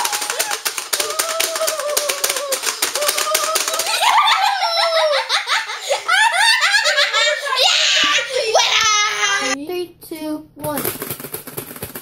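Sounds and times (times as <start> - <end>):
children laughing and squealing: 0.0 - 9.6.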